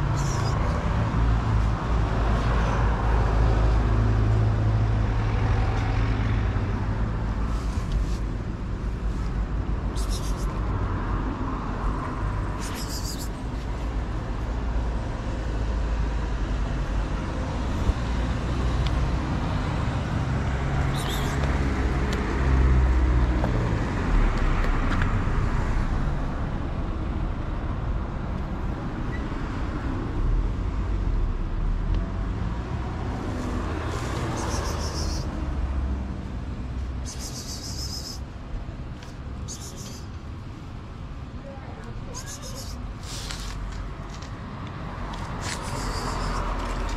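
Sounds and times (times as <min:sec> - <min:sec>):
passing vehicles rumbling: 0:00.0 - 0:46.9
short high hissing noises: 0:09.9 - 0:10.6, 0:12.6 - 0:13.4, 0:37.0 - 0:38.3, 0:39.4 - 0:40.1, 0:42.1 - 0:43.6.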